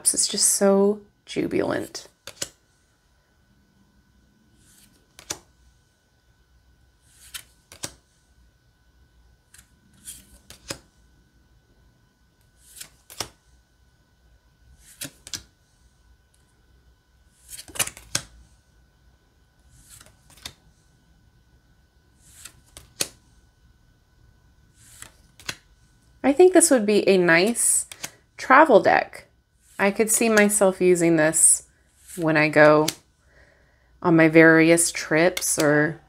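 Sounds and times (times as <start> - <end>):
playing cards snapping: 2.2 - 2.6, 4.7 - 5.5, 7.2 - 8.0, 10.0 - 10.8, 12.6 - 13.4, 14.8 - 15.5, 17.4 - 18.3, 19.8 - 20.6, 22.3 - 23.2, 24.9 - 25.6, 27.8 - 28.2.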